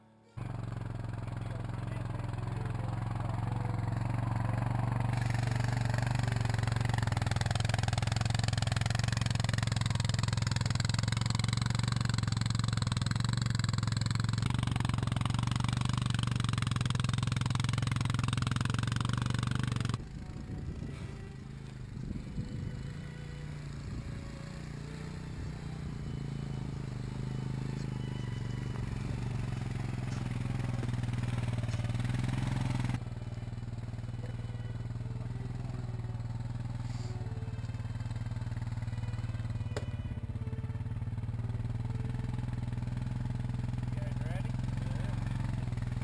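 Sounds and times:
atv engine running under load: 0.4s - 46.0s.

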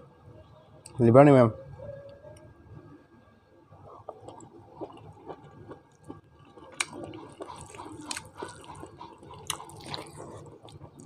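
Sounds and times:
chewing and wet mouth sounds: 3.7s - 11.0s
fingers squishing rice: 3.8s - 11.0s.

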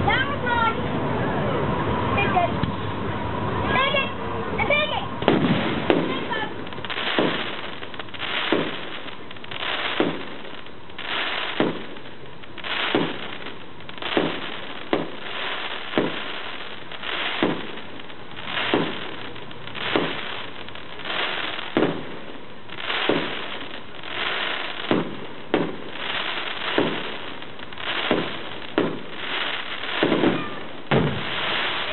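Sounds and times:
fireworks crackling: 0.0s - 31.9s
fireworks bursting: 3.7s - 31.9s.

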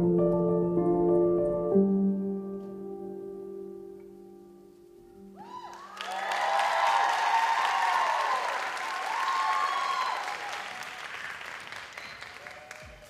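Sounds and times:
audience applauding and cheering: 5.4s - 13.0s.

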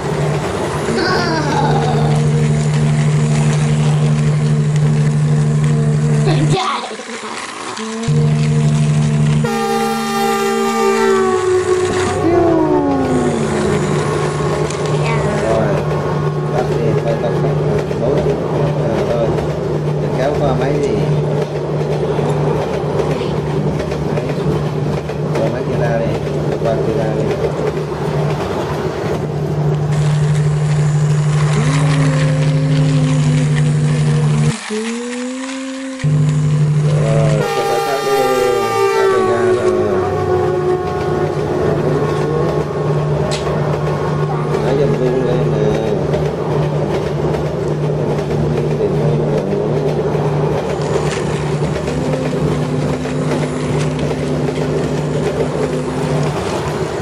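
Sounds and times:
toy train motor hum: 0.0s - 26.1s, 29.1s - 43.4s, 44.4s - 56.9s
toy train motor whirring: 1.0s - 9.5s, 11.0s - 15.6s, 29.9s - 38.6s
higher steady tone: 7.8s - 17.4s, 30.0s - 43.1s
gear clicking and wheel rattle: 40.8s - 57.0s.

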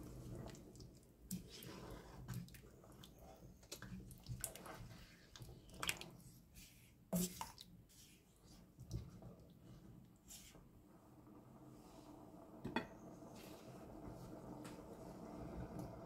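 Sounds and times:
spatula stirring thick curry: 0.0s - 9.3s.

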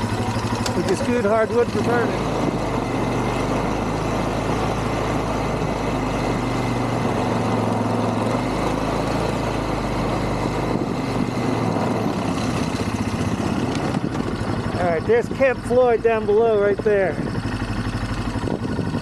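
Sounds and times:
quad bike engine running: 0.0s - 19.0s.

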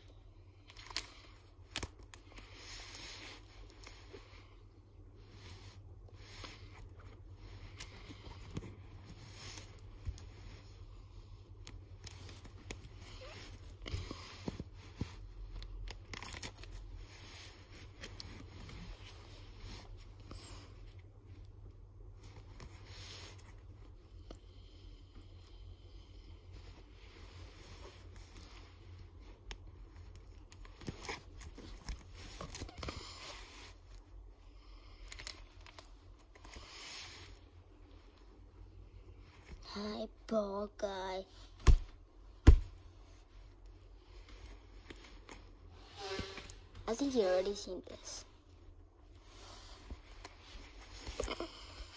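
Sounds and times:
plastic pages rustling: 11.7s - 19.5s, 27.2s - 33.9s.

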